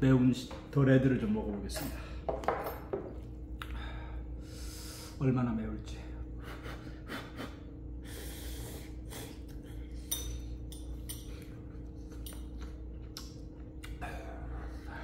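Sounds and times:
steady low hum: 0:00.0 - 0:15.0
utensils clinking against bowl: 0:09.9 - 0:12.8.

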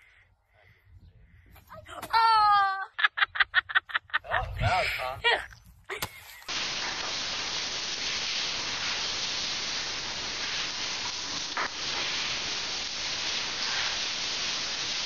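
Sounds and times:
shower spraying water: 0:06.0 - 0:15.0.

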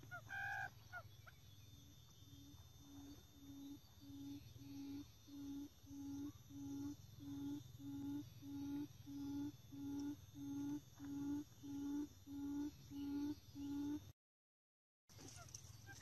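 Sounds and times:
quail call low hooting: 0:00.0 - 0:01.1, 0:02.8 - 0:14.1.

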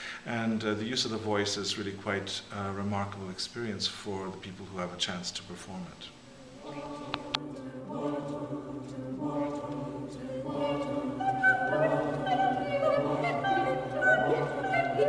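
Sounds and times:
choir singing held notes: 0:06.3 - 0:15.0.

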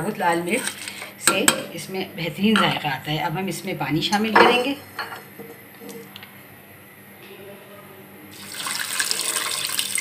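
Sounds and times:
water pouring into pot: 0:08.4 - 0:10.0.

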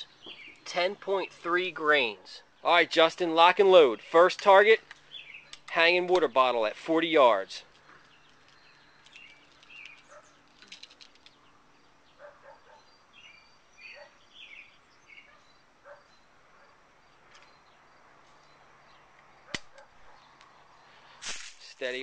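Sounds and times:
small bird chirps: 0:05.0 - 0:05.7, 0:07.8 - 0:10.5, 0:11.2 - 0:16.4
light clicks of pellets handled: 0:07.7 - 0:11.4.

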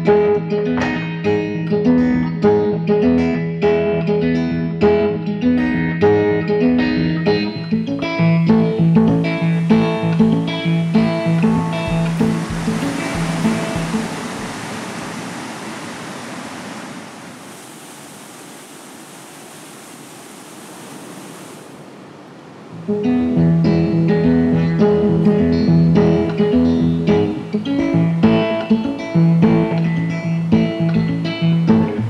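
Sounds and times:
plucked guitar music: 0:00.0 - 0:14.6, 0:22.8 - 0:32.0
stream rushing water: 0:07.5 - 0:23.4.

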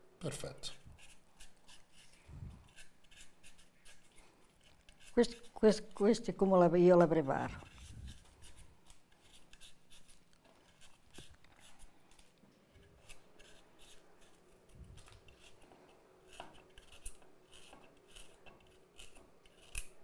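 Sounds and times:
knife slicing a carrot: 0:16.3 - 0:20.0.

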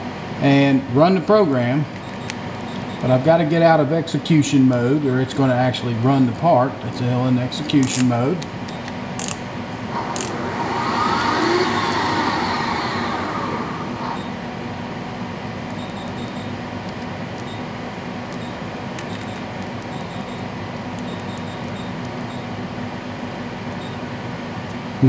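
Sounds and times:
low machine hum: 0:00.0 - 0:25.0
servo motors whirring: 0:09.2 - 0:14.3.

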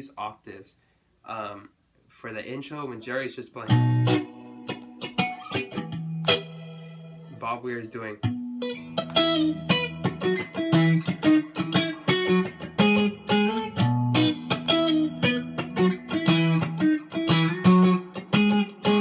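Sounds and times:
electric guitar picking octaves: 0:03.6 - 0:19.0.

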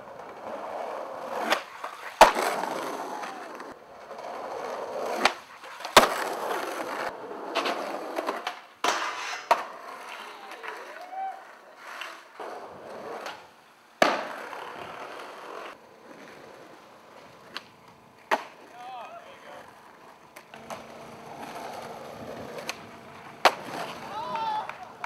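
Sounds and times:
skateboard clack: 0:00.0 - 0:25.0
skateboard wheels rolling on pavement: 0:00.0 - 0:25.0
skateboard snaps: 0:01.3 - 0:03.8, 0:05.0 - 0:11.3, 0:13.1 - 0:15.8, 0:17.2 - 0:19.2, 0:20.0 - 0:25.0.

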